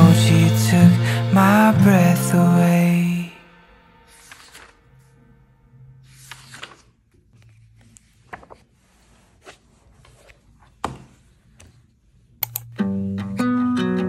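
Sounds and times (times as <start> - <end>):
notebook pages rustling: 4.1 - 4.9, 6.0 - 12.3.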